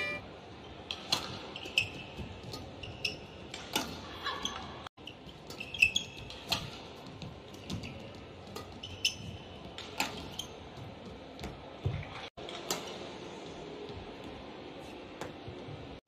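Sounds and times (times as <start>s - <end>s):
steady hall hum: 0.0s - 16.0s
shoe squeaks on court floor: 1.6s - 2.2s, 4.4s - 6.7s, 8.7s - 9.6s, 10.2s - 10.7s
racket striking shuttlecock: 3.5s - 4.0s, 9.9s - 10.3s.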